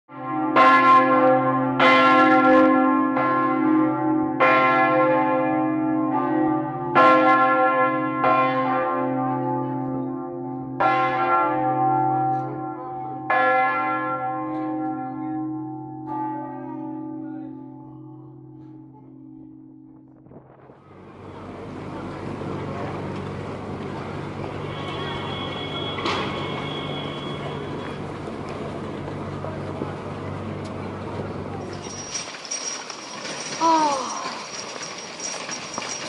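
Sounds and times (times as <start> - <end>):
church bell ringing: 0.1 - 20.2, 24.5 - 28.1.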